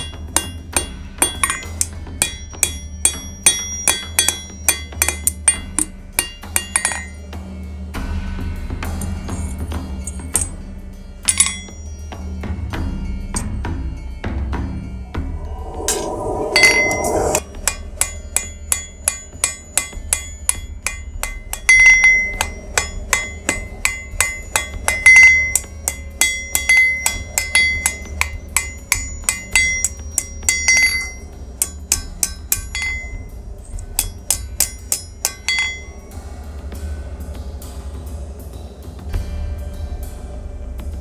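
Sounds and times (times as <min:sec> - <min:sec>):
hammer striking hot steel on anvil: 0:00.0 - 0:07.3, 0:08.9 - 0:10.6, 0:11.2 - 0:12.0, 0:15.4 - 0:36.1
brief rushing noise: 0:15.0 - 0:17.4.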